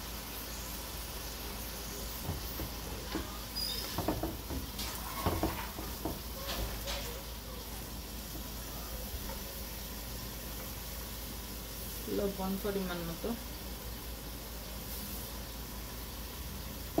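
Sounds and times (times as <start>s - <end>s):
onions sizzling in oil: 0.0s - 17.0s
wooden spoon knocking on pot: 2.2s - 6.7s.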